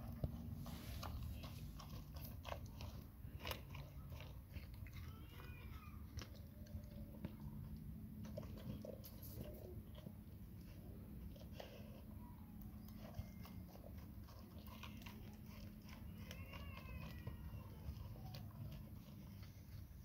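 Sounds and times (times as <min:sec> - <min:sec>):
dog chewing food: 0:00.0 - 0:20.0.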